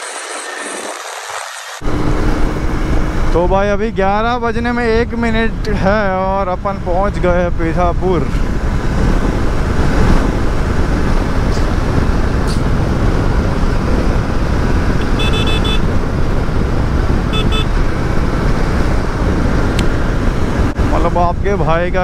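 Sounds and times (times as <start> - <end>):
motorcycle engine rumble: 1.8 - 22.0
vehicle horn tooting: 15.0 - 15.9, 17.3 - 17.8.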